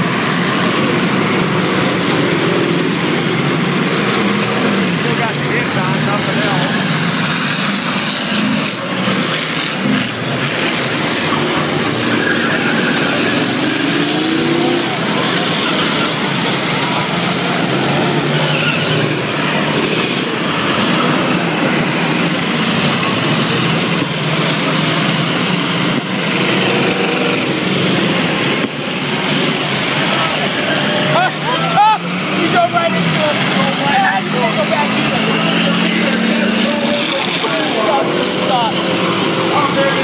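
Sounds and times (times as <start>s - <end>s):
race car engines running hard: 0.0s - 40.0s.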